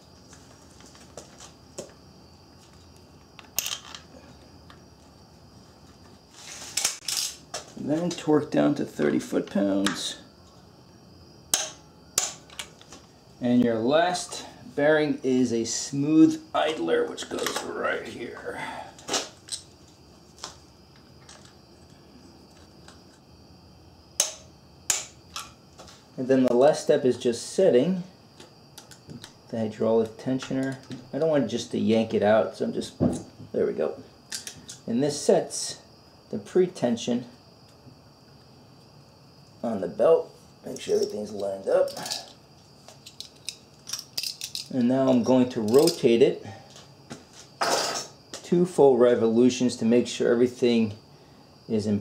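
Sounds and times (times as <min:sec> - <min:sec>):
sharp metal click of wrench: 0:24.2 - 0:25.5.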